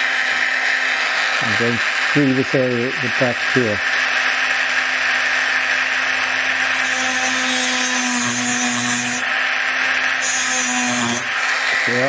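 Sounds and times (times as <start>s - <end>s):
cutting disc grinding metal: 0.0s - 12.0s
rotary tool motor whine: 0.0s - 12.0s.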